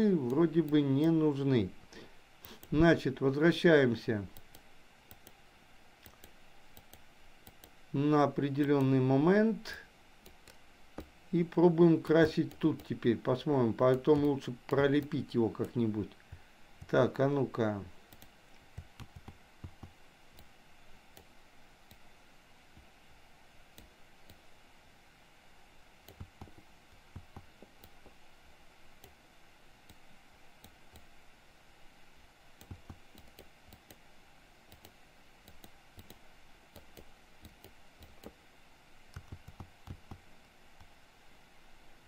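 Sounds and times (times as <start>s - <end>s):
steady low hiss: 0.0s - 42.0s
mouse and keyboard clicks: 6.0s - 7.8s, 18.1s - 20.5s, 32.6s - 34.0s, 39.1s - 40.2s.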